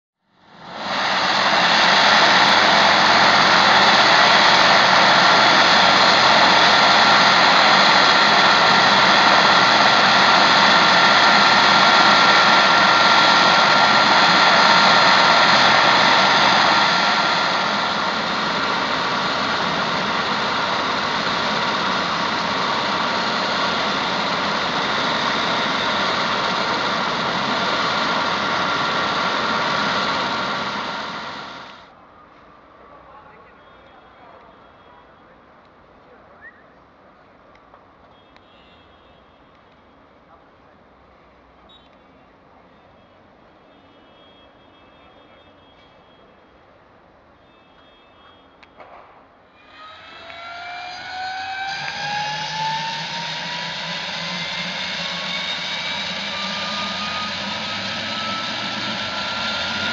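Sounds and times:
helicopter turbine whine: 0.4 - 31.9, 49.6 - 59.9.

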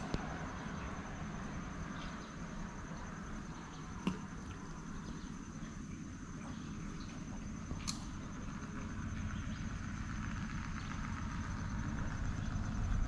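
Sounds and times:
faint high whine: 0.0 - 13.0
light click: 7.8 - 8.1
wind rumble on microphone: 8.2 - 13.0.

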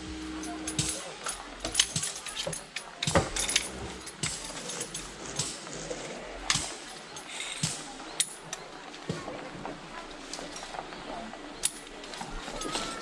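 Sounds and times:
tent poles clicking together: 0.4 - 9.2.

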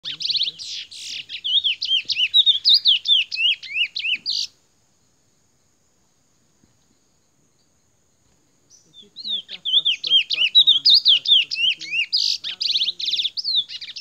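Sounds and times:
finch singing whistles: 0.0 - 4.5, 8.7 - 14.0.

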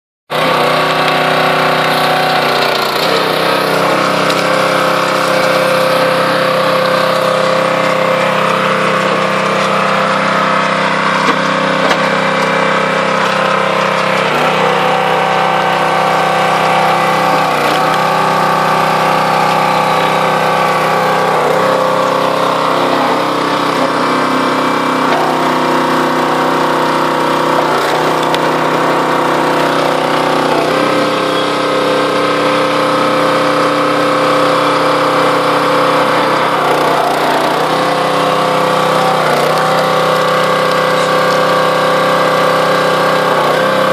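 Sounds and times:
log splitter engine running: 0.3 - 43.9.

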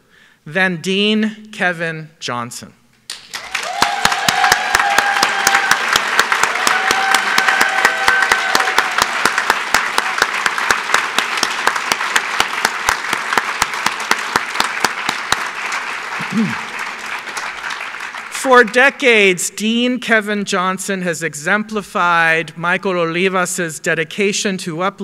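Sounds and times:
nearby person clapping: 3.1 - 18.3
audience applauding: 3.1 - 18.8
people whooping: 3.3 - 10.4, 16.2 - 16.7.

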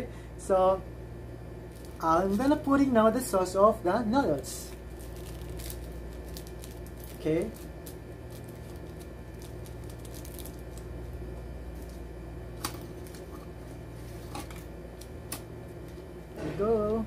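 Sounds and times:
steady low hum: 0.0 - 17.0
sauce sachets squishing: 4.8 - 10.9.

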